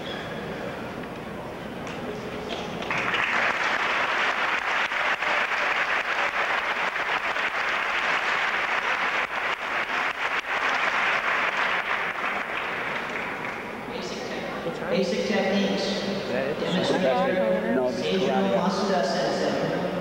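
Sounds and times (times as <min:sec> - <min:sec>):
audience applause: 0:02.7 - 0:13.8.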